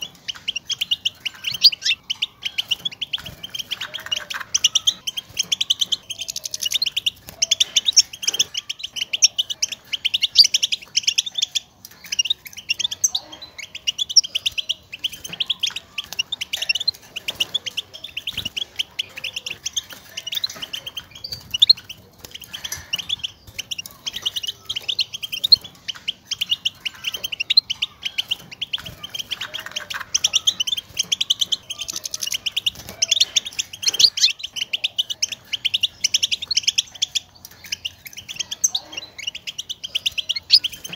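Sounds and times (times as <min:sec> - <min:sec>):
goldfinch twittering chirps: 0:00.0 - 0:40.9.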